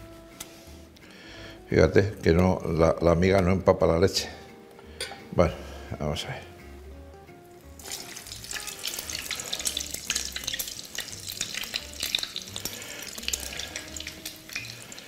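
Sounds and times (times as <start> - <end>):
bread frying in sizzling oil: 7.7 - 15.0.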